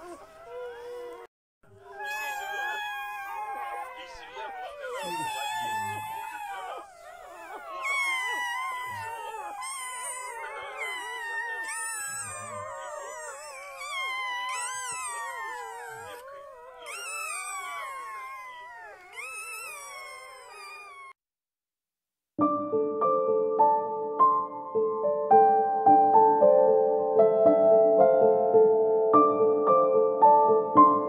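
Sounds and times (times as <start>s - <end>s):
puppies crying and whining: 0.0s - 21.2s.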